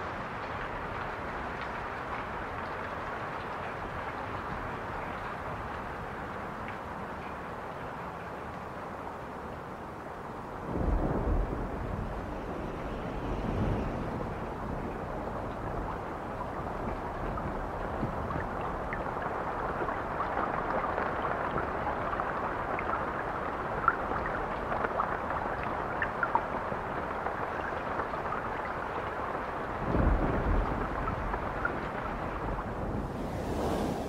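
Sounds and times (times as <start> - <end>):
steady rain: 0.0 - 34.0
low rumble of thunder: 10.6 - 24.9, 29.6 - 34.0.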